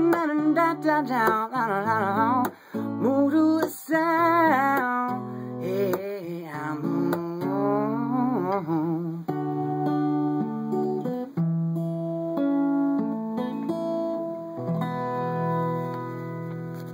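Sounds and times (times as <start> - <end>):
person singing wordlessly: 0.0 - 9.4
acoustic guitar chords: 0.0 - 16.9.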